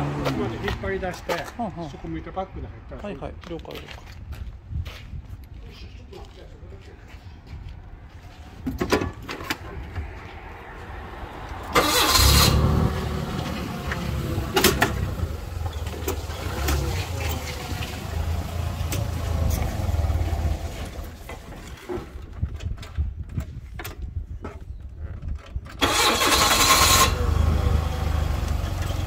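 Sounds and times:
forklift engine running: 0:11.7 - 0:21.2, 0:25.8 - 0:29.0.

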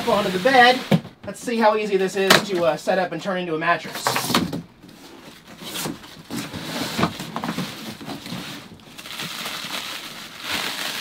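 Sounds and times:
cardboard scraping on wood: 0:04.0 - 0:08.8.

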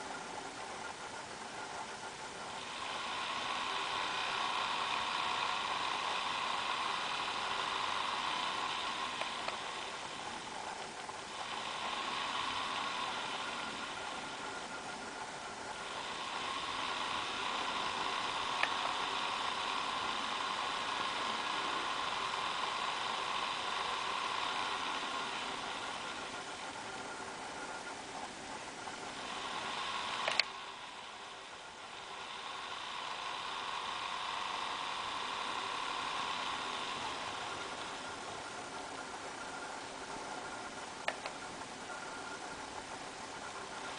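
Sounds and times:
laptop cooling fan whooshing: 0:00.0 - 0:43.9
sharp click: 0:30.2 - 0:30.5.

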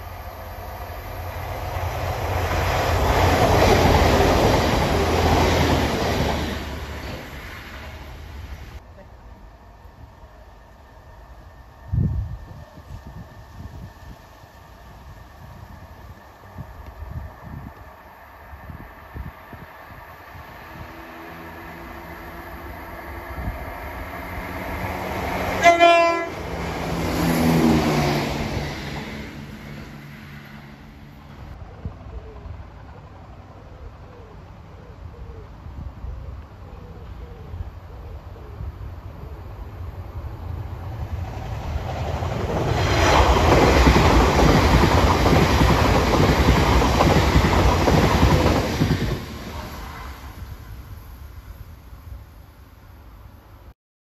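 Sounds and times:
train wheels on rails: 0:00.0 - 0:08.8, 0:11.9 - 0:33.5, 0:39.8 - 0:51.3
diesel train passing: 0:00.0 - 0:53.7
train horn: 0:25.4 - 0:26.6, 0:49.5 - 0:50.5.

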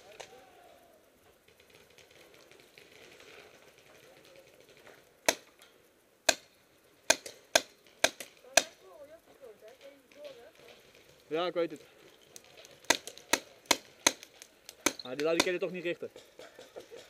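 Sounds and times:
paintball gun cracks: 0:01.6 - 0:08.8, 0:12.3 - 0:15.7.

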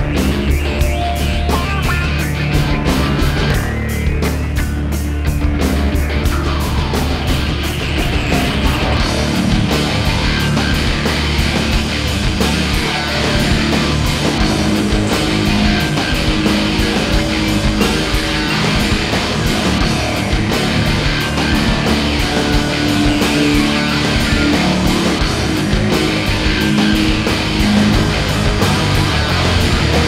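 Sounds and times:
electric guitar: 0:00.0 - 0:30.0
rock music: 0:00.0 - 0:30.0
steady drum beat: 0:00.0 - 0:30.0.

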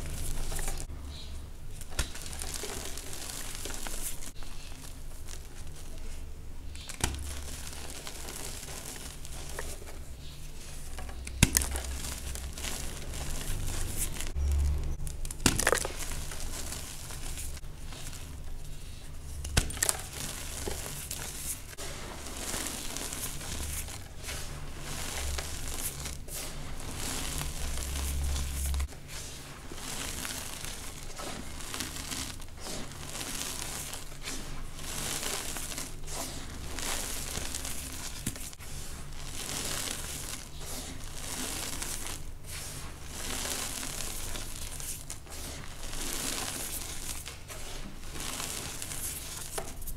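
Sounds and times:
hands crunching dry powder: 0:00.0 - 0:49.9
low hum: 0:09.8 - 0:19.8.

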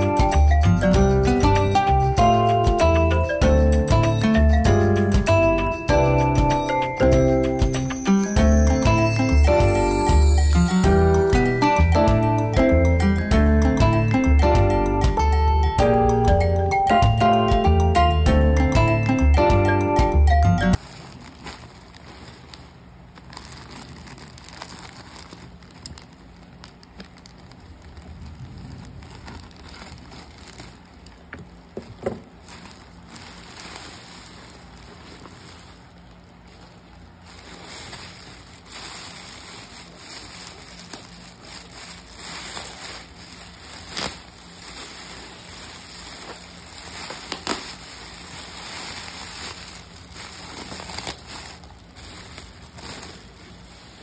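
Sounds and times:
bubble wrap crackling: 0:00.0 - 0:04.5, 0:05.1 - 0:17.6, 0:20.0 - 0:54.0
plastic packaging crinkling: 0:05.4 - 0:12.6, 0:20.7 - 0:54.0.

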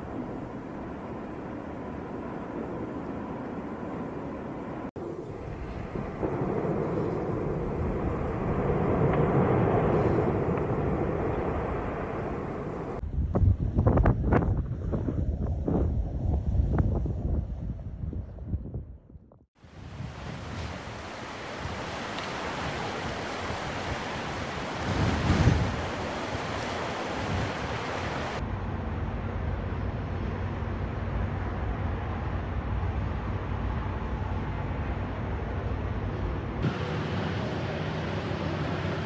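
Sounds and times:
wind noise on microphone: 0:05.0 - 0:30.4.

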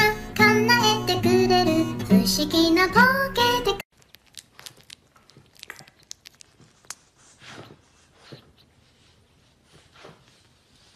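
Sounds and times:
puppy smacking lips: 0:04.0 - 0:09.0
puppy soft breaths: 0:06.6 - 0:10.9.

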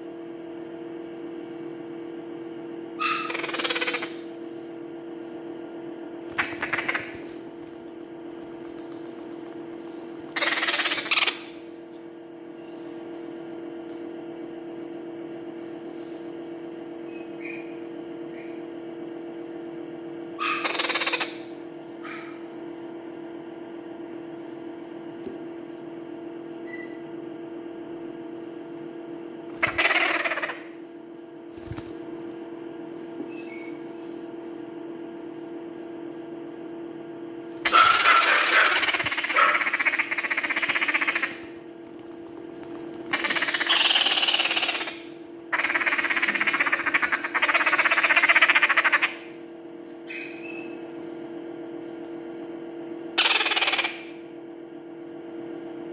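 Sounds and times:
steady hum: 0:00.0 - 0:20.4, 0:21.3 - 0:53.2
parrot chicks begging calls: 0:03.0 - 0:04.3, 0:06.3 - 0:07.8, 0:10.2 - 0:11.6, 0:20.4 - 0:21.4, 0:29.6 - 0:30.8, 0:37.6 - 0:49.2, 0:53.2 - 0:54.1.

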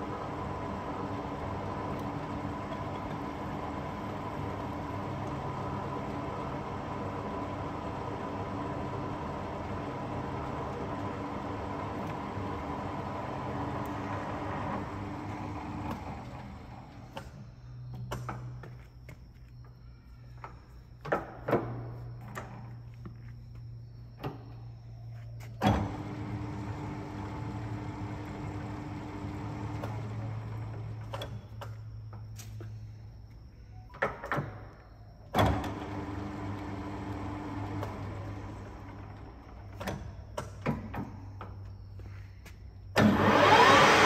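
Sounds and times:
lathe motor humming: 0:25.9 - 0:31.0, 0:43.0 - 0:44.0.

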